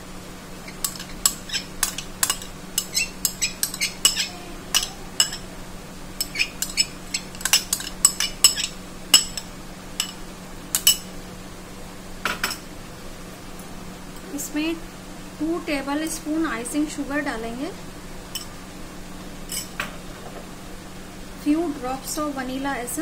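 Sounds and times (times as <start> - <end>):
faint steady hum: 0.0 - 23.0
bowl tapping glass bowl rim: 0.8 - 5.5.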